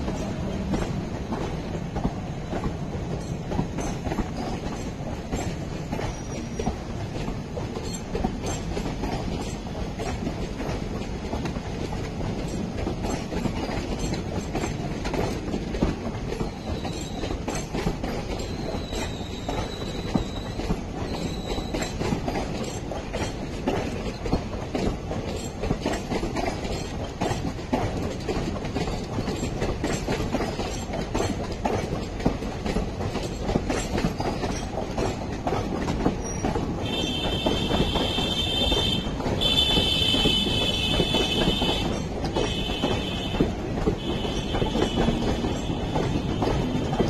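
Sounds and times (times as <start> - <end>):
train coaches rumbling past: 0.0 - 47.0
wheels clacking over rail joints: 0.0 - 47.0
metallic wheel squeal: 16.6 - 17.3, 18.4 - 22.0.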